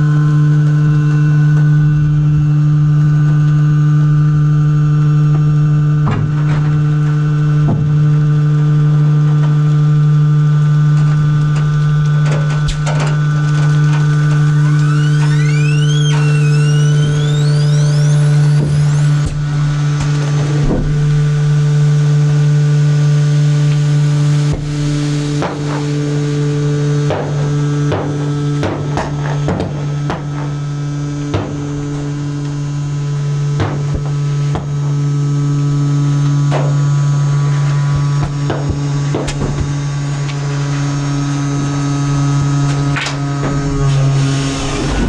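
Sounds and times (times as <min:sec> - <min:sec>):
hydraulic drive humming: 0:00.0 - 0:45.0
trash bags cracking and clicking: 0:11.0 - 0:15.3.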